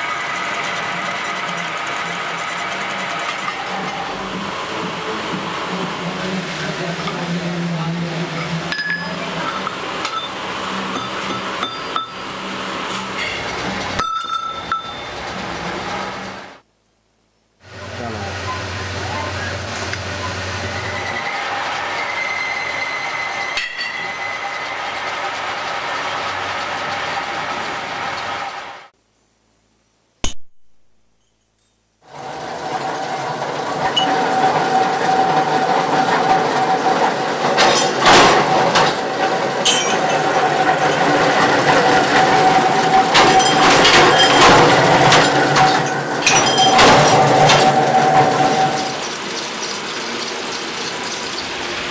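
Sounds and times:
metal lathe humming: 0.0s - 16.6s, 17.8s - 28.9s, 32.1s - 51.9s
workshop machinery whine: 0.0s - 16.7s, 17.6s - 29.0s, 32.0s - 51.9s
metallic clinks and knocks: 13.1s - 15.1s.

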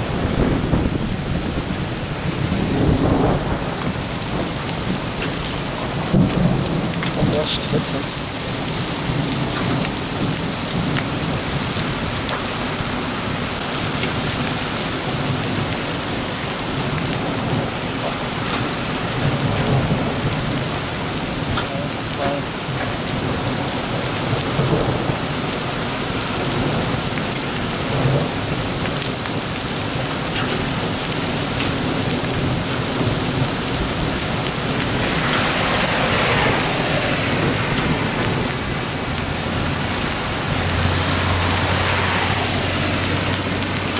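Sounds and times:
heavy rain on asphalt: 0.0s - 43.9s.

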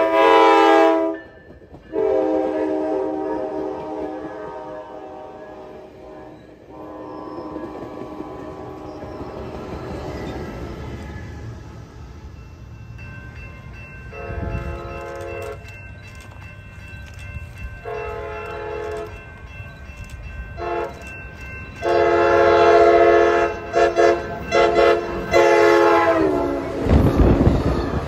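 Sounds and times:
train horn blasts: 0.0s - 1.3s, 1.9s - 10.4s, 14.1s - 15.7s, 17.8s - 19.2s, 20.6s - 21.0s, 21.8s - 28.0s
train cars rushing past: 0.0s - 28.0s.

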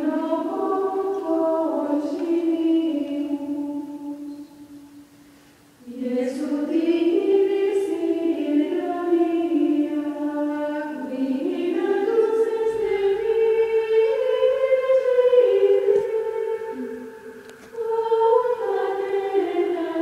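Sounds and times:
choir singing long held notes: 0.0s - 5.1s, 5.8s - 20.0s.

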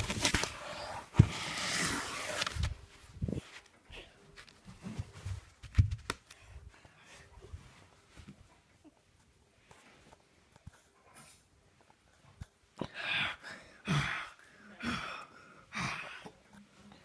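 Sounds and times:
rustling on phone microphone: 0.0s - 10.9s.

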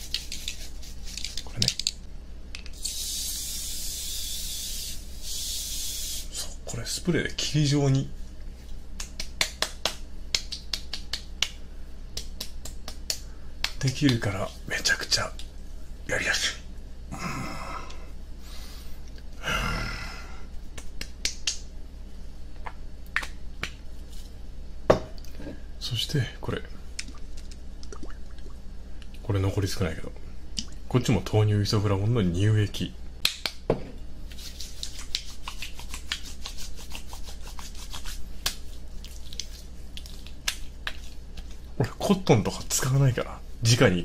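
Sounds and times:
hands rubbing lotion on skin: 0.0s - 1.5s, 34.3s - 41.7s.

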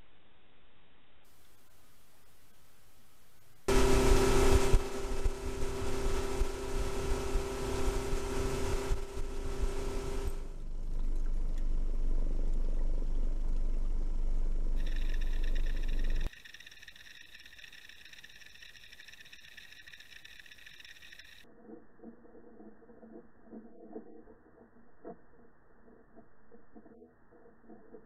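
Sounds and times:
higher whine: 3.7s - 16.3s
boat motor running: 3.7s - 21.4s.

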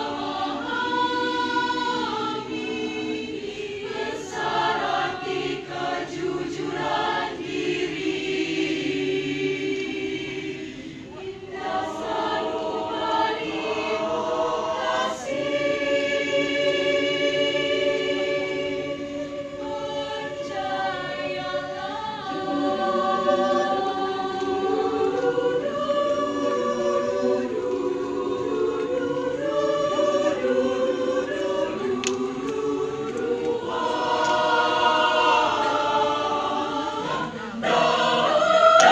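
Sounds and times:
mixed choir singing in harmony: 0.0s - 38.9s.

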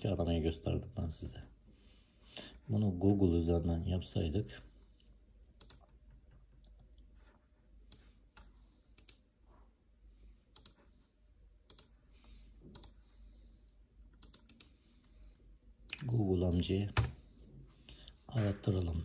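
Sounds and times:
low room hum: 0.0s - 19.0s
computer mouse and keyboard clicking: 5.6s - 7.0s, 10.5s - 10.9s, 11.6s - 12.0s, 12.6s - 13.0s, 14.0s - 16.2s.

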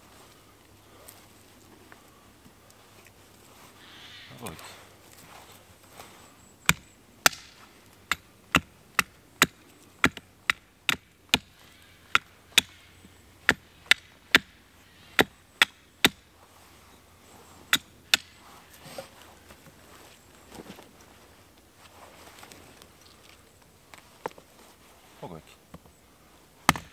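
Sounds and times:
axe chopping wood: 6.7s - 12.8s, 13.4s - 14.5s, 15.2s - 16.2s, 17.7s - 18.4s, 26.6s - 26.9s.

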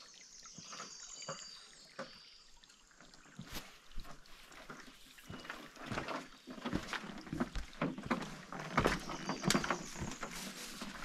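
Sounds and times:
footsteps on loose rocks: 5.3s - 11.0s.

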